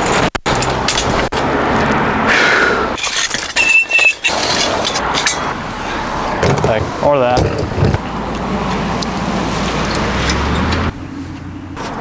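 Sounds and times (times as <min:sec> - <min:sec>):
car passing: 0:00.5 - 0:03.2, 0:04.3 - 0:12.0
metal tent frame rattling and clicking: 0:03.0 - 0:05.5
short high squeak: 0:03.5 - 0:04.6.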